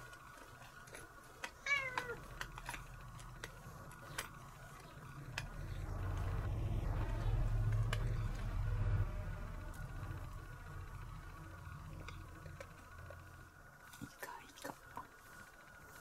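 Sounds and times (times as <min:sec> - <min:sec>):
lint roller rolling over fur: 0:00.0 - 0:16.0
cat meowing: 0:01.6 - 0:02.2.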